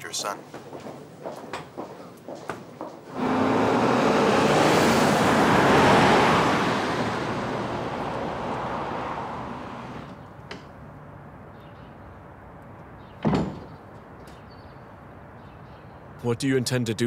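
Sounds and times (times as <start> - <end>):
car driving off: 3.1 - 10.2.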